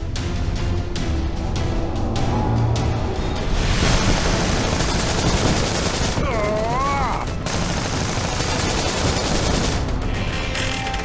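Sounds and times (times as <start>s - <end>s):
rapid automatic gunfire: 3.8s - 10.0s.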